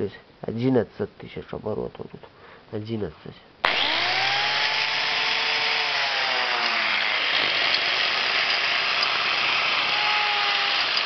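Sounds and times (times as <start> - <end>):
angle grinder whine: 3.6 - 11.0.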